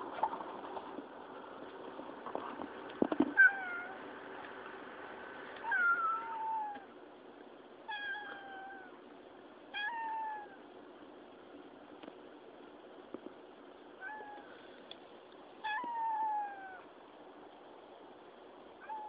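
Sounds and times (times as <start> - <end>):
cat meowing: 3.4 - 4.0, 5.6 - 6.9, 7.9 - 9.0, 9.7 - 10.6, 14.0 - 14.5, 15.6 - 16.9, 18.8 - 19.0.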